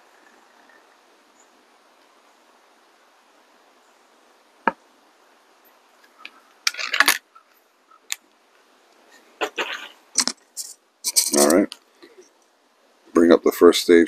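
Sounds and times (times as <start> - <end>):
faint background hiss: 0.0 - 14.0
metallic rattles: 6.7 - 7.2.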